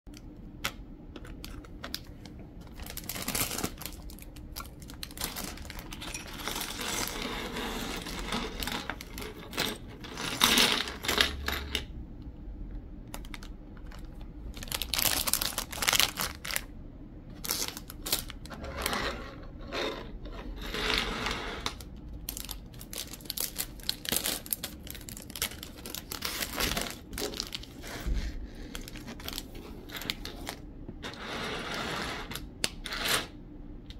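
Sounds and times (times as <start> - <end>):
plastic bag rustling: 1.3 - 11.1, 13.1 - 16.7, 17.3 - 19.0, 21.7 - 30.6.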